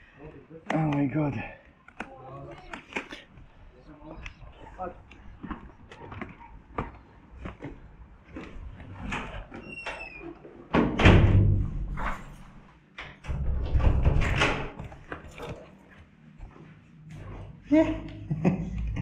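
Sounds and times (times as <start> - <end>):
footsteps: 1.8 - 9.7, 14.7 - 19.0
door opening and closing: 8.8 - 15.6.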